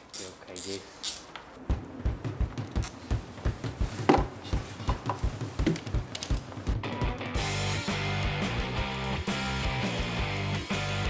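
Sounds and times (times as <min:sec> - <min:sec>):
regular low thump: 0:01.6 - 0:06.8.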